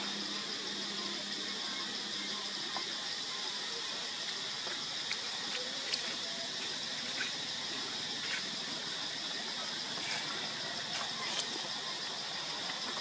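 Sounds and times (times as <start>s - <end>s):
high-pitched outdoor hiss: 0.0s - 13.0s.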